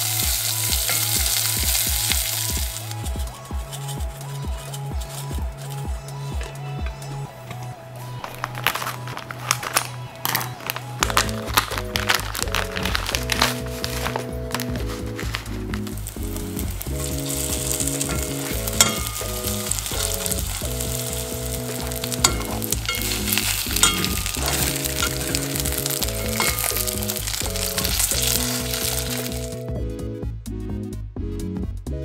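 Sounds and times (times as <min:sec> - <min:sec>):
food sizzling in oil: 0:00.0 - 0:03.3, 0:10.3 - 0:29.6
background music: 0:00.0 - 0:32.0
metal tongs clicking on pan: 0:17.0 - 0:29.4.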